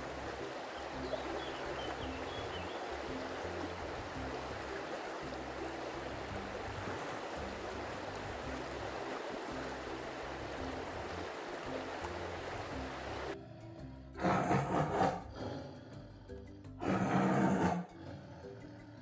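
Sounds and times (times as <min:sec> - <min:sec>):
rushing water: 0:00.0 - 0:13.4.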